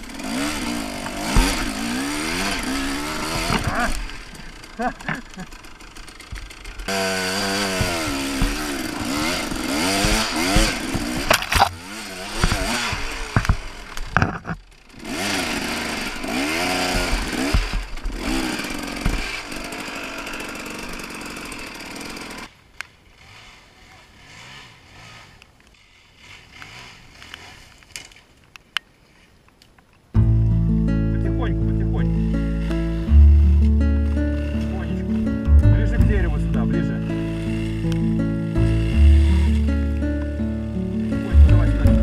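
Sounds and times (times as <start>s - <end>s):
two-stroke motorcycle engine revving: 0.0s - 22.5s, 23.2s - 25.4s, 26.2s - 27.6s, 31.4s - 42.0s
sharp knocks: 1.0s - 4.0s, 6.3s - 13.6s, 16.7s - 18.2s.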